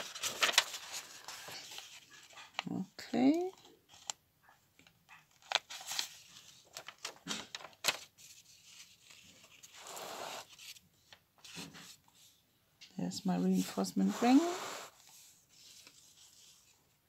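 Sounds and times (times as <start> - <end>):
page being turned: 0.0 - 2.7, 5.3 - 10.8, 13.6 - 16.8
paper journal taps and rustles: 0.0 - 2.7, 4.8 - 8.1.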